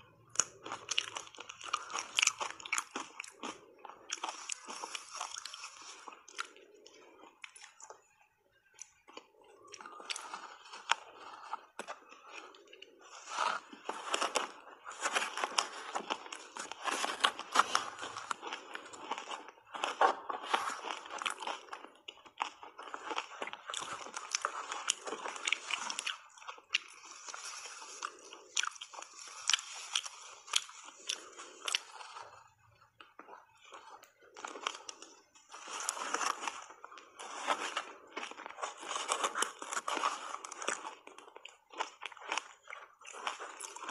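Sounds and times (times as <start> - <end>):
chewing crunchy ice: 0.0 - 43.9.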